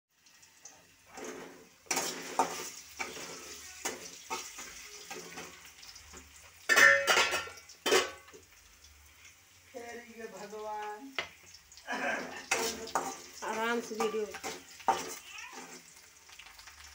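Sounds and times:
light sizzle of oil: 0:00.1 - 0:16.9
metal spatula scraping wok: 0:01.1 - 0:05.8, 0:12.3 - 0:16.0.

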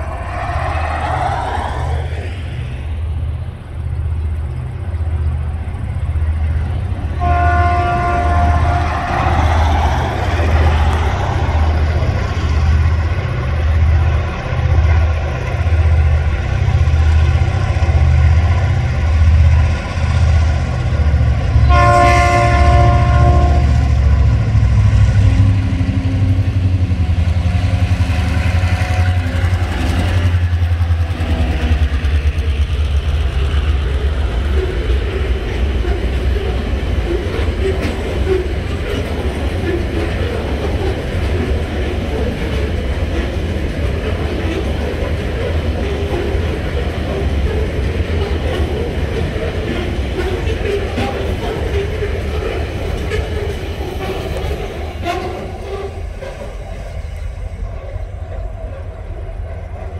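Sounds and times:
diesel locomotive engine throb: 0:00.0 - 0:59.9
train wagons passing: 0:00.0 - 0:59.9
multi-tone air horn: 0:07.2 - 0:09.0, 0:21.7 - 0:23.9.

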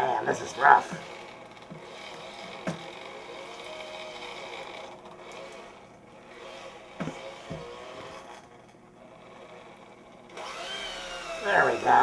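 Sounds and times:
electric hand mixer running: 0:00.0 - 0:12.0.

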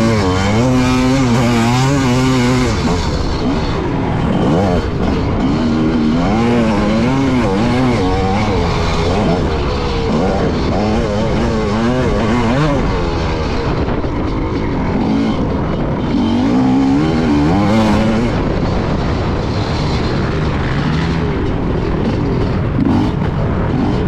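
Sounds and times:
motocross bike engine revving: 0:00.0 - 0:24.0
steady rush of noise: 0:00.0 - 0:24.0.

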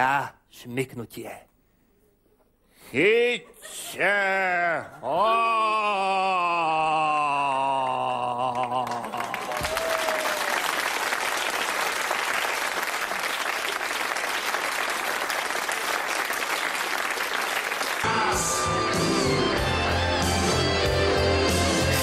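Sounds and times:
audience applauding: 0:08.2 - 0:18.4.

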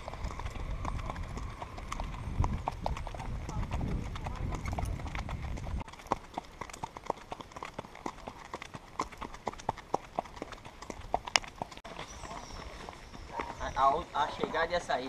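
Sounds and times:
wind rumble on microphone: 0:00.0 - 0:05.9
horse hooves clip-clopping: 0:00.0 - 0:15.0.

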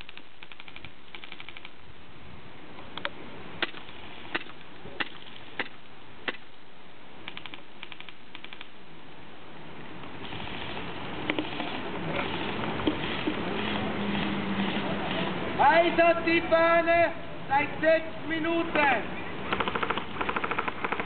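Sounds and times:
airsoft gun full-auto bursts: 0:00.0 - 0:01.8, 0:19.5 - 0:21.0
airsoft gun single shots: 0:03.6 - 0:06.5.

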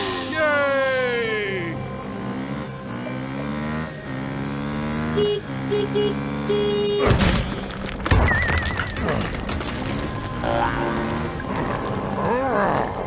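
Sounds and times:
horn tooting: 0:00.0 - 0:07.5
vehicle engine running: 0:01.6 - 0:07.0, 0:09.5 - 0:12.8.

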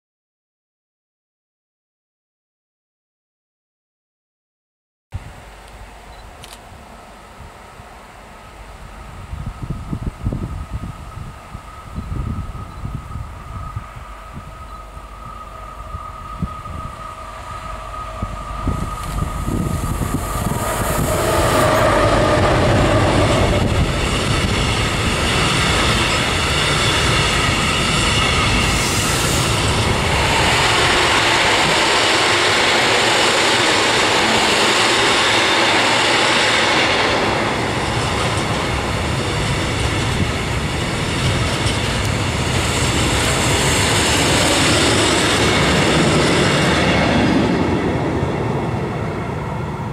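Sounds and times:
diesel locomotive: 0:05.2 - 0:49.9
freight wagons rumbling past: 0:14.7 - 0:35.7.

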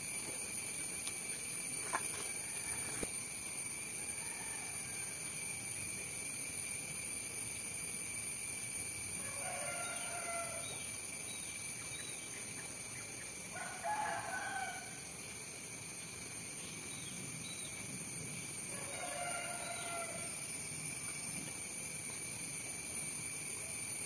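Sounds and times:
high insect drone: 0:00.0 - 0:24.0
rooster crowing: 0:04.0 - 0:05.4, 0:09.2 - 0:10.8, 0:13.5 - 0:15.1, 0:18.7 - 0:20.5.

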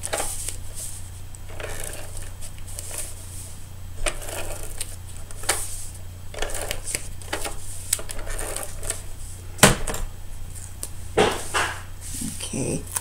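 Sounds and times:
tape dispenser clicking and rasping: 0:06.3 - 0:09.0
knock on table: 0:11.2 - 0:11.8.

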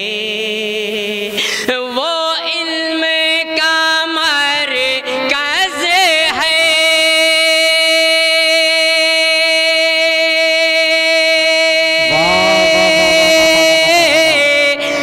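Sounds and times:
lower voice singing: 0:12.0 - 0:15.0
man singing long note: 0:12.0 - 0:15.0.

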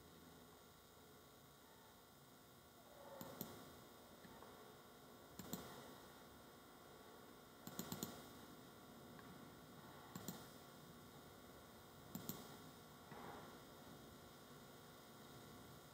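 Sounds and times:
faint room hiss: 0:00.0 - 0:15.9
computer mouse button clicks: 0:03.2 - 0:03.6, 0:05.4 - 0:05.7, 0:07.6 - 0:08.2, 0:10.1 - 0:10.4, 0:12.1 - 0:12.5.

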